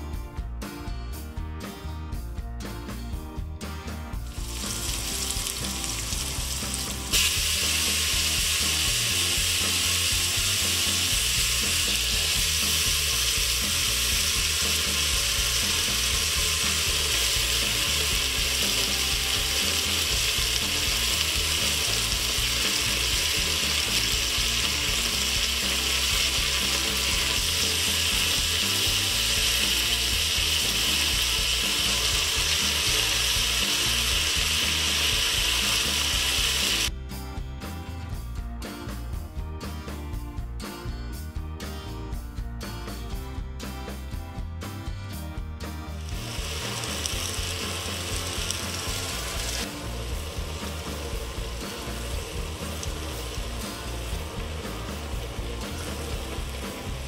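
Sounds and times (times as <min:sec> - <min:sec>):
hot oil sizzling: 0:04.2 - 0:36.9, 0:45.9 - 0:57.0.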